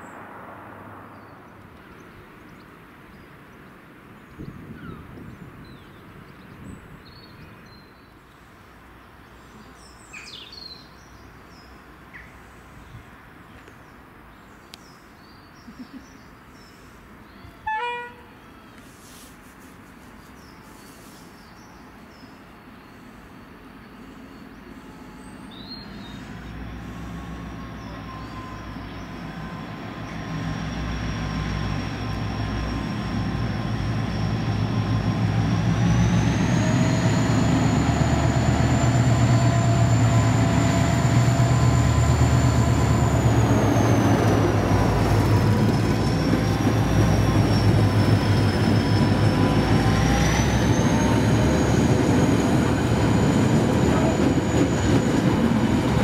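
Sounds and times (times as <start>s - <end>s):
diesel locomotive engine drone: 15.9s - 56.0s
rumble of train wagons: 17.1s - 56.0s.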